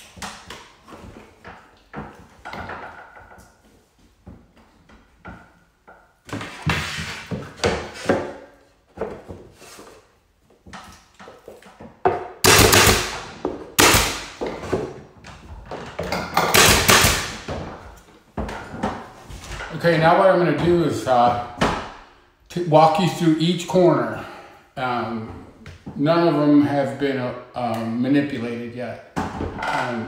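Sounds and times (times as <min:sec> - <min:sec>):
pneumatic nailer shots: 0:12.4 - 0:14.5, 0:16.4 - 0:17.6.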